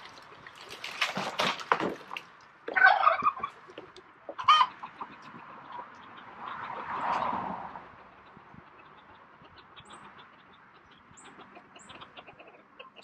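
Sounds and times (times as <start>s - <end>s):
chicken clucking: 2.7s - 7.3s, 7.9s - 13.0s.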